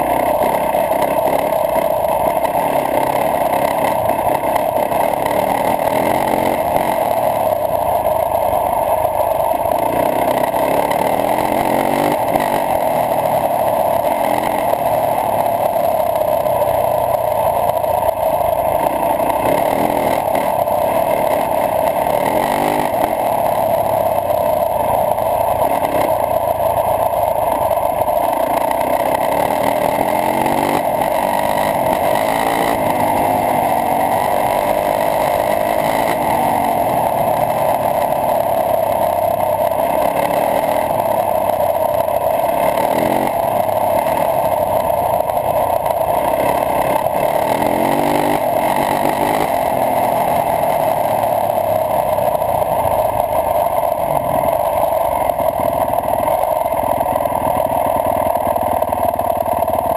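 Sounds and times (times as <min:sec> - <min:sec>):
dirt bike engine running: 0:00.0 - 0:59.9.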